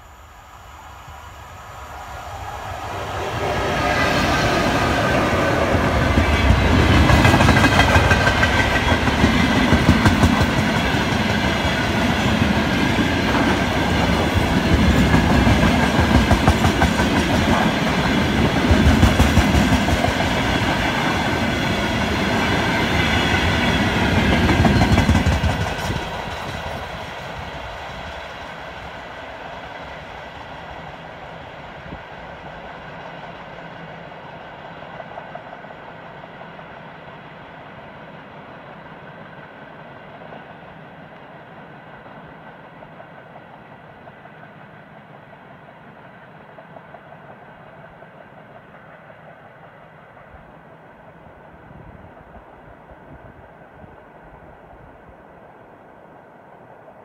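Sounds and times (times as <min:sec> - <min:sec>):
distant train rumble: 0:00.0 - 0:57.0
train wheels clattering over rails: 0:03.2 - 0:28.2.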